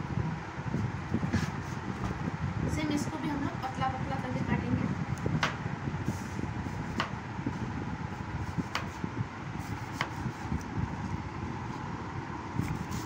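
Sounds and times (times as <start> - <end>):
knife slicing an apple: 8.5 - 9.0, 9.6 - 10.7.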